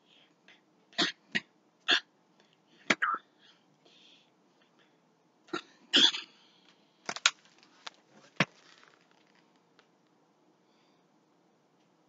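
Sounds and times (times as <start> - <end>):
book rustling: 7.1 - 9.6.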